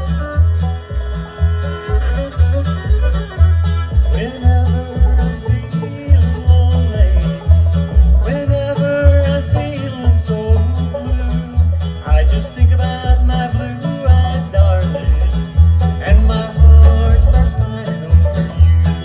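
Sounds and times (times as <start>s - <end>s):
acoustic guitar: 0.0s - 19.0s
banjo: 0.0s - 19.0s
fiddle: 0.0s - 19.0s
upright bass: 0.0s - 19.0s.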